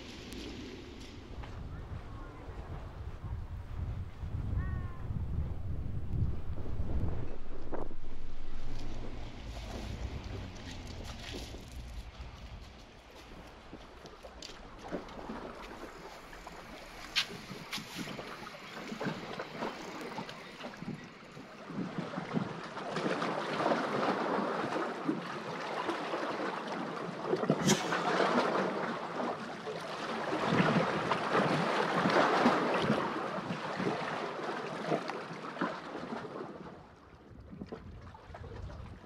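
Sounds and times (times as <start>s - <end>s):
water lapping against rocks: 5.7s - 39.0s
sharp water splash: 6.8s - 20.8s, 27.3s - 36.2s.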